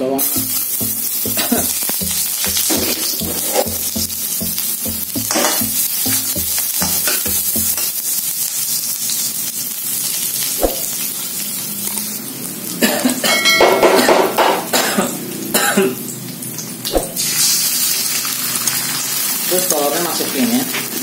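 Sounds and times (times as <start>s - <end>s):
shallots sizzling in oil: 0.2s - 21.0s
metal spatula scraping wok: 2.5s - 3.8s.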